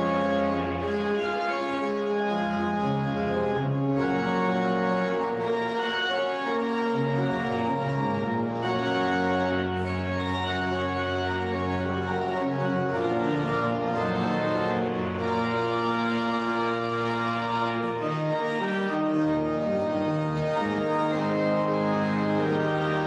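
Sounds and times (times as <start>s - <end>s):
church organ chords: 0.0s - 23.0s.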